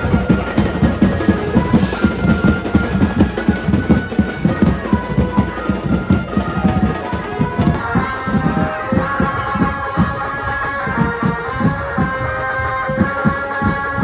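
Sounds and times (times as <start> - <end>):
fast dense drumming: 0.0 - 10.2
held melody line: 0.0 - 14.0.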